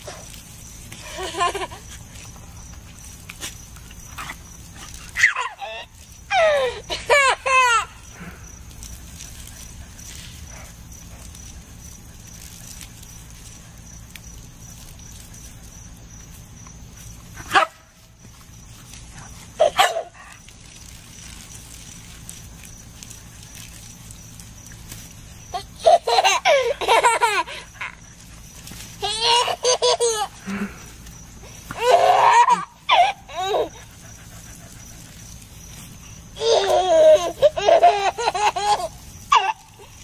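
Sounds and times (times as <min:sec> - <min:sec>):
toddler laughing: 0:05.2 - 0:08.0, 0:19.6 - 0:20.2, 0:25.5 - 0:28.0, 0:29.0 - 0:30.4, 0:31.7 - 0:33.9, 0:36.4 - 0:40.0.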